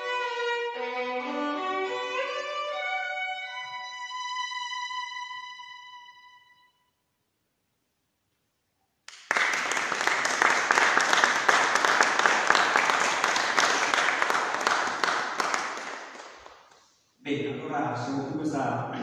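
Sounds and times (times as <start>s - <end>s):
audience applauding: 9.1s - 16.9s.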